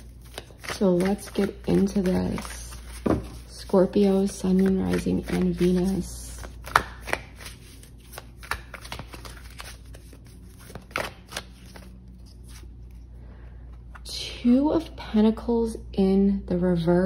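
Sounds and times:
cards being shuffled: 0.0s - 13.1s.

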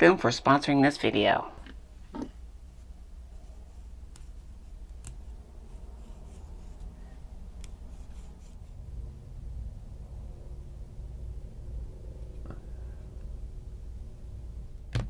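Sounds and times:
low steady hum: 0.0s - 15.0s
wires rubbing: 2.0s - 9.5s.

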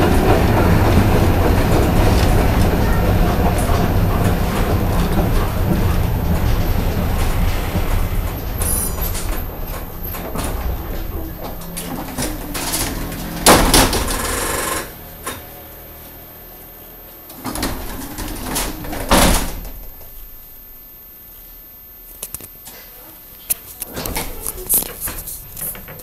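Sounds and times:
tram doors thumping shut: 0.0s - 15.5s, 17.4s - 20.3s
tram doors clattering and hissing: 0.0s - 15.7s, 17.3s - 20.8s, 23.7s - 26.0s
tram rumbling and rattling: 0.0s - 15.8s, 17.3s - 21.0s, 23.5s - 26.0s.

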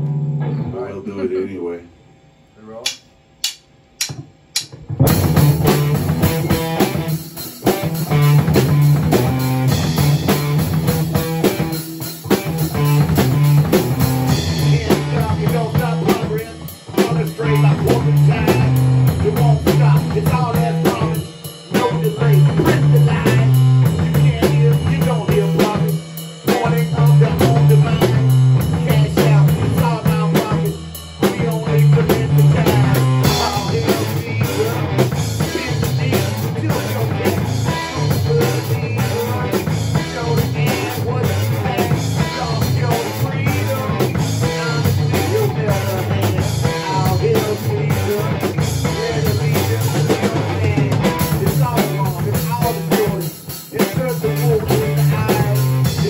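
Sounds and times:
electric guitar: 0.0s - 1.0s, 4.8s - 56.0s
drum kit: 2.6s - 56.0s
man singing into a microphone: 14.5s - 56.0s.

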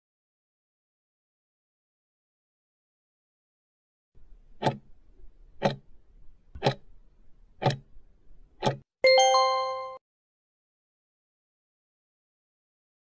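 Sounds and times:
clock ticking: 4.6s - 5.0s, 5.6s - 5.9s, 6.6s - 6.9s, 7.6s - 7.9s, 8.6s - 8.8s
bell-like chime: 9.0s - 10.0s.

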